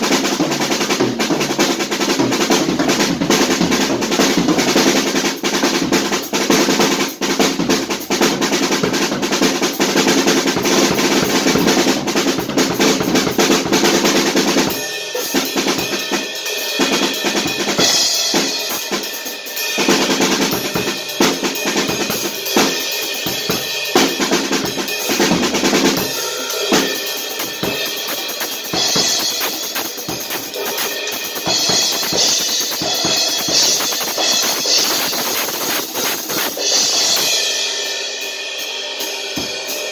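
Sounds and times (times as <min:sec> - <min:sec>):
drum kit groove: 0:00.0 - 0:39.9
cymbal washes: 0:26.0 - 0:39.9.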